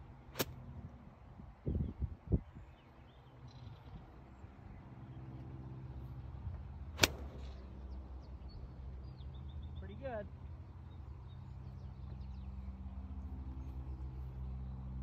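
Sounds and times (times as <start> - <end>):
low engine hum: 0.0 - 15.0
golf club striking ball: 7.0 - 7.7.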